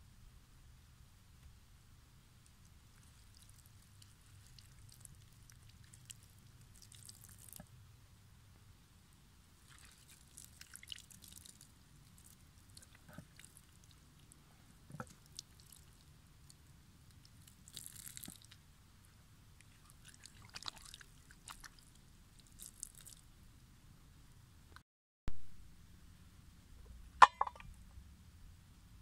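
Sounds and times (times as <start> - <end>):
water trickling over hands: 2.7 - 7.6, 9.6 - 14.4, 15.0 - 18.6, 19.6 - 23.2.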